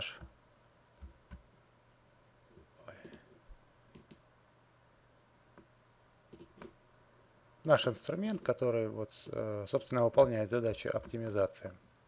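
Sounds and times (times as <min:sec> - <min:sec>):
mouse and keyboard clicks: 0:03.9 - 0:04.2, 0:06.3 - 0:06.8.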